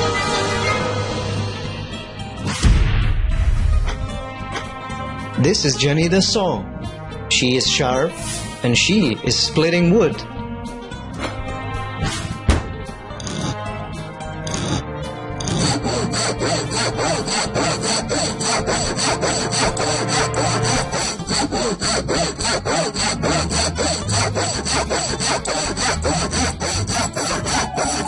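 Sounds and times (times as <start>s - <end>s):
light background music: 0.0s - 28.0s
hand saw sawing wood: 13.2s - 13.6s, 14.4s - 14.8s, 15.4s - 28.0s.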